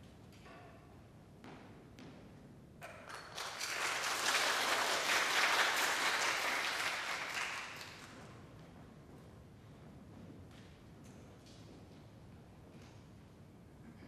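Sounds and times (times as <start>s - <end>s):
audience applauding: 3.0s - 8.2s.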